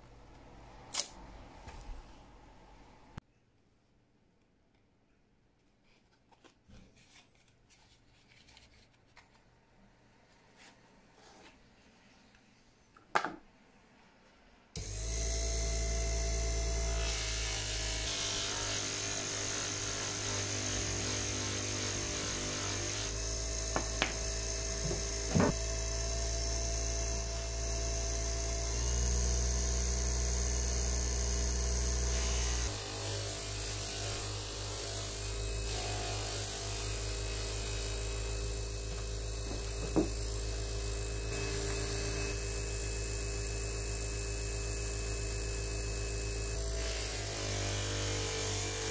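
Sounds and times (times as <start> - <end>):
buffing motor humming: 14.8 - 48.9.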